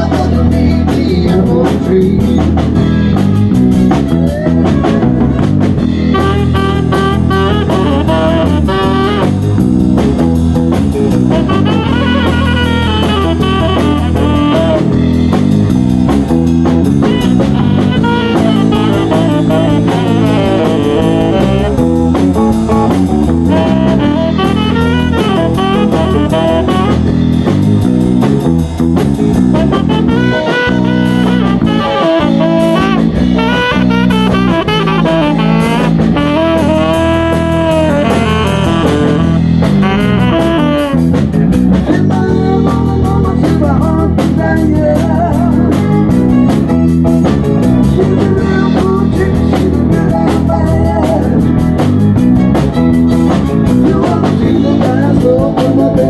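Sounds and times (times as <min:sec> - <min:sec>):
drum kit: 0:00.0 - 0:56.0
electric bass: 0:00.0 - 0:56.0
tenor saxophone solo: 0:04.1 - 0:41.7.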